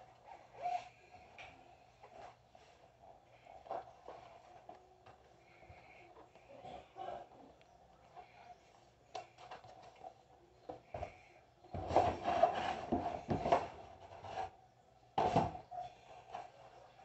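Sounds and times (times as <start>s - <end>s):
cardboard box scraping and rustling: 11.8s - 14.5s.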